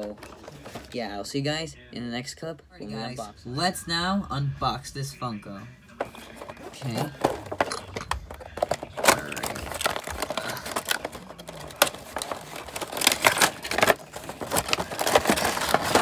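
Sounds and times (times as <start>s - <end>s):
plastic insert crinkling: 6.0s - 16.0s
cardboard box being opened: 8.5s - 16.0s.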